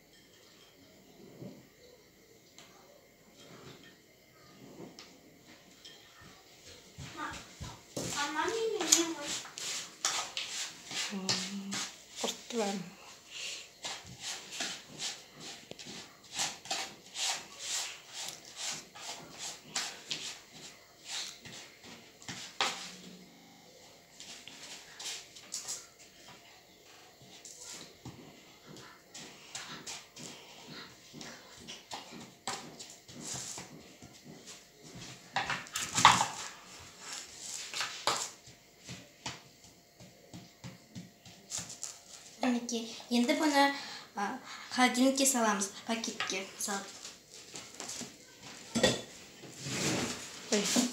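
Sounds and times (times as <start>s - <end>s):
hand rubbing crumbly mixture: 8.0s - 12.8s.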